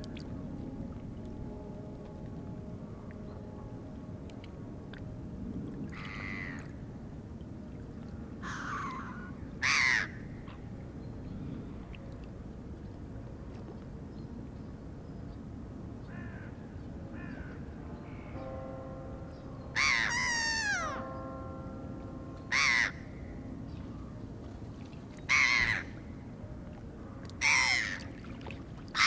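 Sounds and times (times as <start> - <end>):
gulls calling: 17.2 - 29.0.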